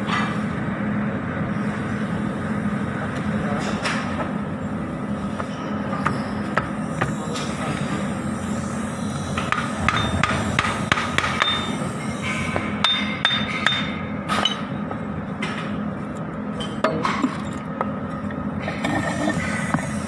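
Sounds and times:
steady low hum: 0:07.9 - 0:14.3
hammering on metal: 0:09.8 - 0:13.9.

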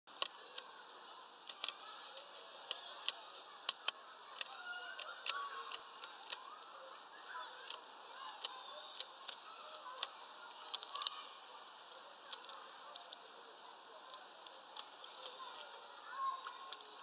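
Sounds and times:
faint bird chirps: 0:12.7 - 0:13.4, 0:14.9 - 0:16.4.

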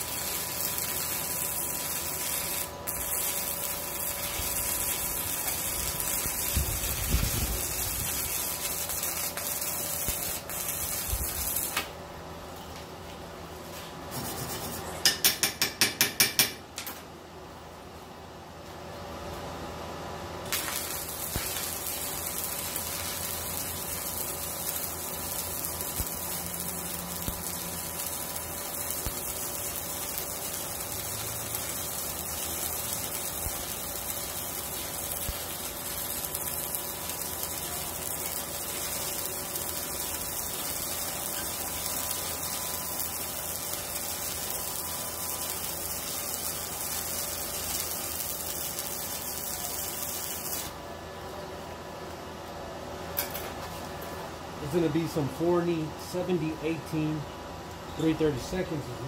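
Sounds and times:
welding arc hissing: 0:00.0 - 0:12.0, 0:20.4 - 0:50.8.

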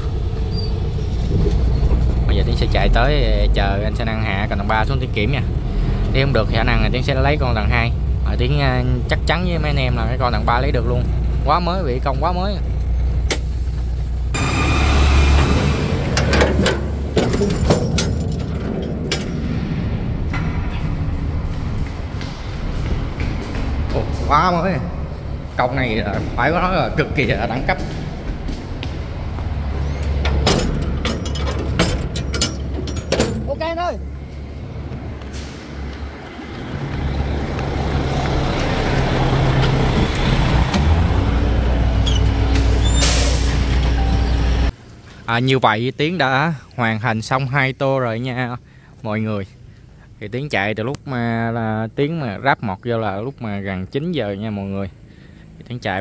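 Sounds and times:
low rumble: 0:00.0 - 0:42.8
truck engine idling: 0:00.0 - 0:44.8
metal locking bars clanking: 0:16.0 - 0:19.5, 0:29.9 - 0:33.8.

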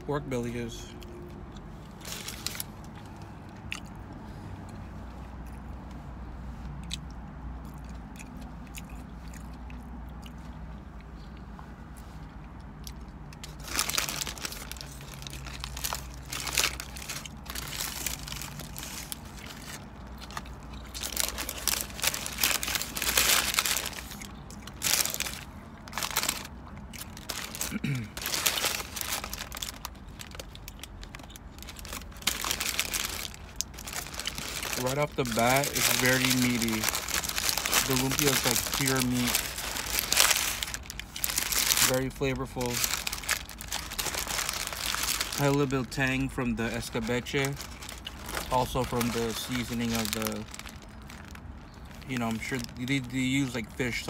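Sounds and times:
person chewing: 0:01.0 - 0:35.0
paper wrapper crinkling: 0:02.0 - 0:02.9, 0:13.4 - 0:54.0.

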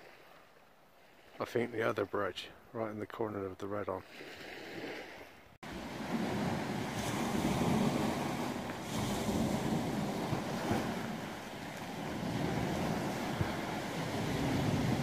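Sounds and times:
sea washing on shore: 0:04.0 - 0:15.0
wind rumbling on microphone: 0:05.7 - 0:15.0.

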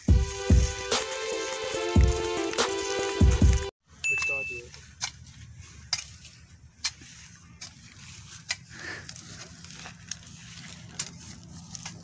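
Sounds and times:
hand hoe chopping into soil: 0:04.2 - 0:12.0
blade scraping through earth: 0:04.7 - 0:12.0.

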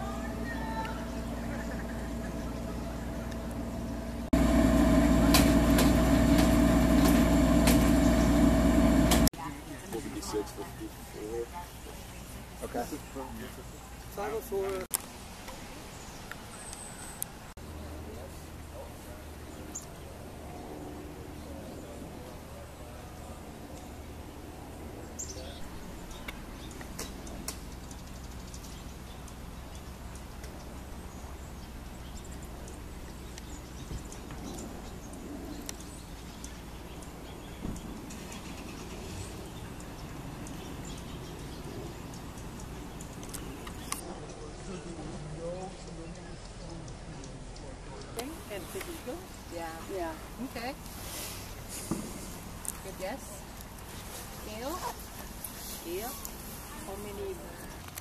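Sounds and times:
low outdoor rumble: 0:00.0 - 0:09.3
steady machine hum: 0:00.0 - 0:09.3.

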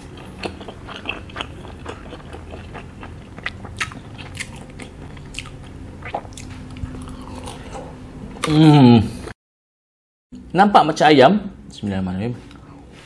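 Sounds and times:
close chewing mouth clicks and smacks: 0:00.2 - 0:07.7.

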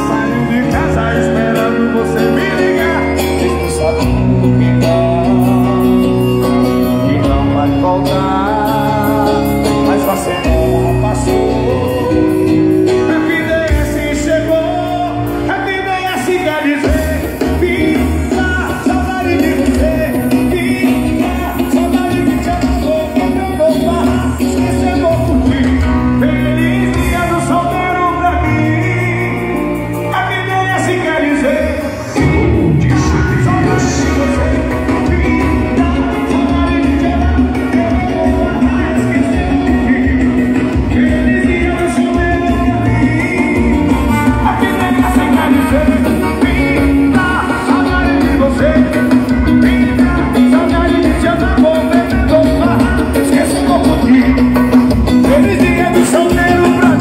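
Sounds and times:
heavy bass: 0:00.0 - 0:57.0
loud pop music with singing: 0:00.0 - 0:57.0
pulsing bass beat: 0:31.9 - 0:51.6.

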